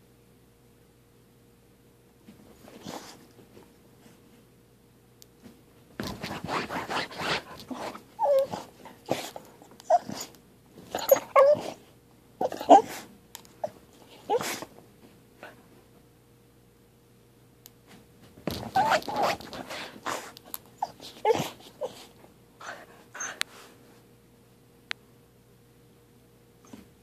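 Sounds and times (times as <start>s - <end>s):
bedcover rustling: 6.0s - 9.3s, 18.4s - 21.8s
dog snuffling: 6.0s - 10.3s
dog whimpering: 7.7s - 10.3s, 10.9s - 11.8s, 12.4s - 13.0s, 18.6s - 19.5s, 20.8s - 23.4s.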